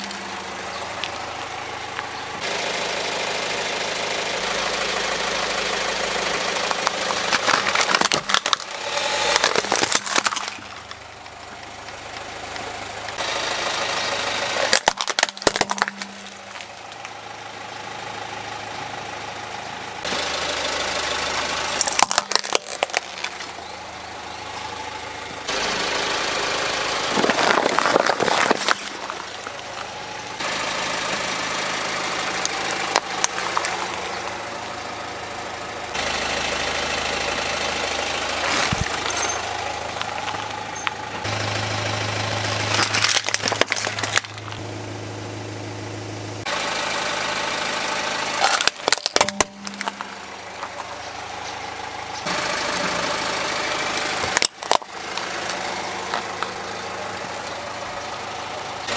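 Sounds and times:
plastic toys cracking and crunching: 0.0 - 0.4, 6.3 - 12.3, 14.5 - 17.2, 21.4 - 23.7, 27.0 - 29.9, 32.4 - 34.3, 38.4 - 41.0, 42.4 - 44.6, 48.4 - 50.9, 53.9 - 56.5
car engine running at low speed: 0.0 - 58.9.

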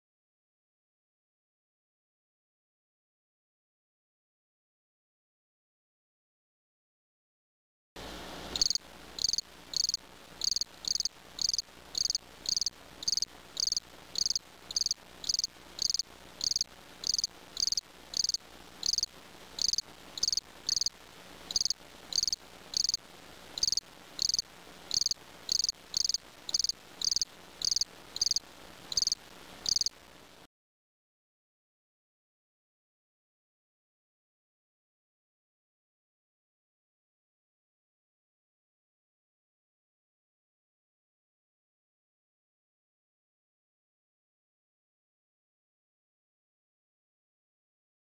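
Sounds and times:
cricket chirping: 8.6 - 20.9, 21.5 - 23.0, 23.6 - 30.0.

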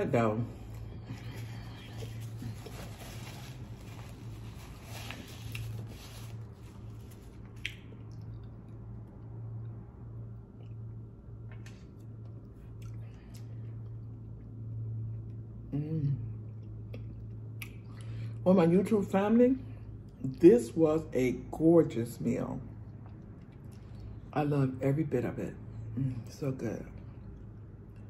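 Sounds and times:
steady low hum: 0.0 - 28.0
paper napkin rustling: 1.3 - 7.5
chewing: 22.8 - 24.2.

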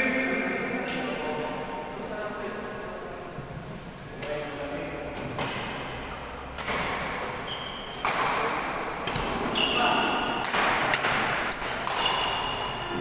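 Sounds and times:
rackets striking shuttlecock: 6.5 - 9.3, 10.3 - 12.7
sneakers squeaking on court: 7.3 - 8.2, 9.1 - 13.0.

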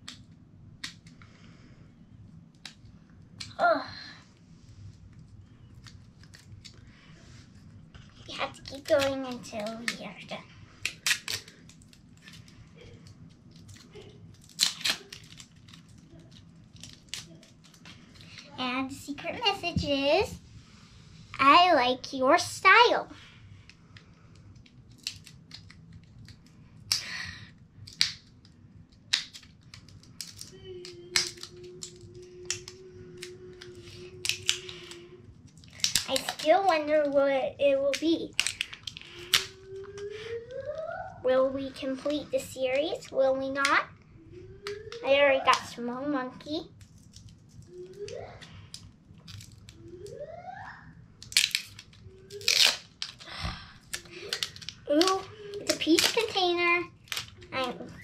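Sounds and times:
faint steady hum: 0.0 - 58.0
plastic tearing rustles: 4.8 - 20.3, 23.2 - 27.2, 27.8 - 43.8, 46.6 - 50.3, 51.2 - 58.0
plastic wrapping crinkling: 4.8 - 20.3, 23.2 - 27.2, 27.8 - 37.2, 37.9 - 41.1, 46.7 - 50.3, 51.2 - 58.0.

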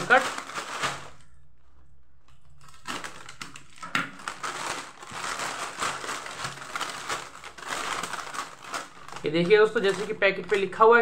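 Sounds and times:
plastic wrap and foil crinkling: 0.0 - 11.0
scissors cutting wrap: 2.6 - 10.7.

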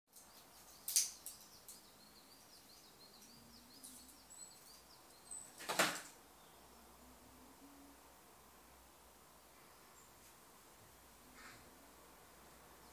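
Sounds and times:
small birds chirping: 0.1 - 7.3, 8.4 - 10.4.

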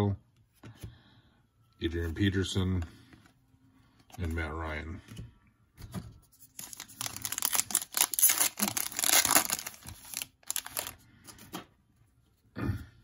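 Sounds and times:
foil wrapper crinkling: 6.6 - 11.0.

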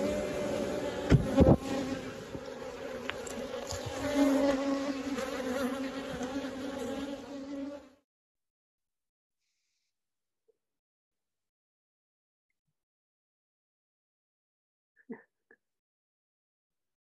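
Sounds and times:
honeybees buzzing: 0.0 - 8.0.

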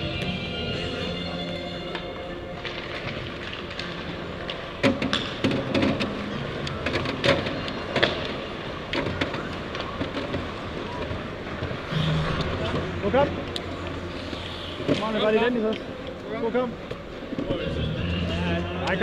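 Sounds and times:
hockey pucks clacking: 1.9 - 12.9.

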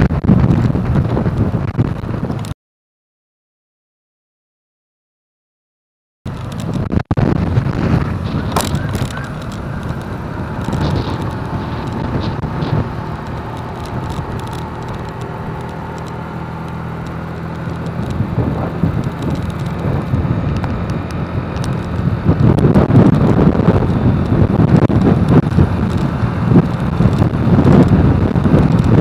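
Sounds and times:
motorcycle engine running: 0.0 - 2.5, 6.3 - 29.0
wind buffeting microphone: 0.0 - 2.5, 6.3 - 29.0
road and traffic noise: 0.0 - 2.6, 6.3 - 29.0.

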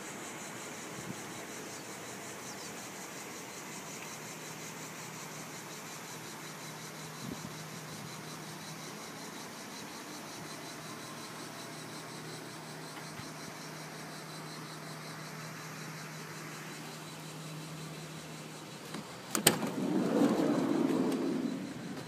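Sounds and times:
van engine humming: 8.4 - 22.0
sliding door rumbling open: 19.3 - 22.0.

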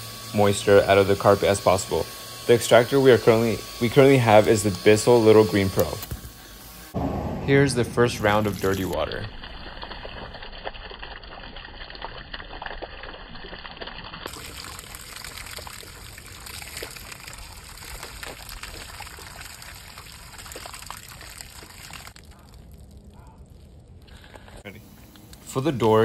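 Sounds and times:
water pouring and splashing: 7.5 - 24.7.

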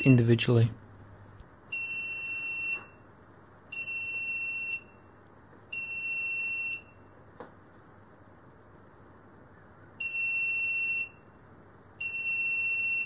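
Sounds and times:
electronic alarm buzzer beeping: 1.7 - 3.0, 3.7 - 5.1, 5.7 - 7.1, 10.0 - 11.2, 12.0 - 13.0.

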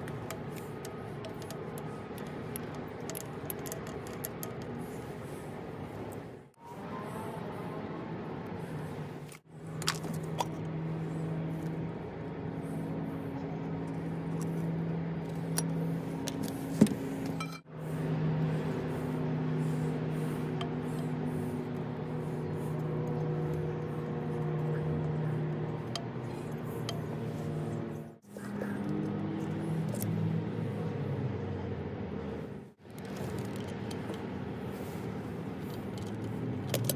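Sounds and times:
small metal parts clicking: 0.0 - 4.8, 35.7 - 36.9
steady low hum: 0.0 - 36.9.

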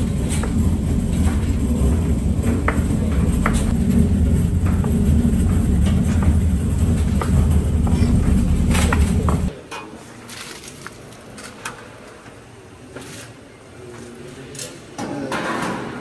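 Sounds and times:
low rumble of kitchen machinery: 0.0 - 9.5.

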